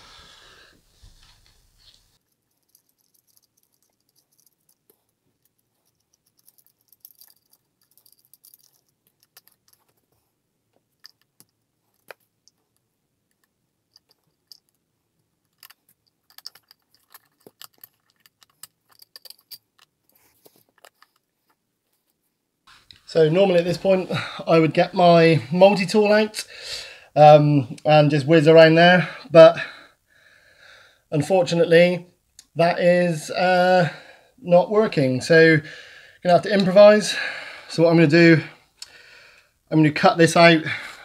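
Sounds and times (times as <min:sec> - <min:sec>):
clicks and clinks of metal and plastic: 0:02.2 - 0:10.0, 0:15.4 - 0:21.3.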